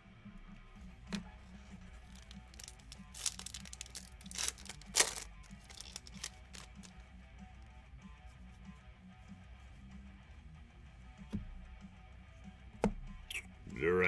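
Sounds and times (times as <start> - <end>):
foil wrapper tearing and crinkling: 2.0 - 7.0.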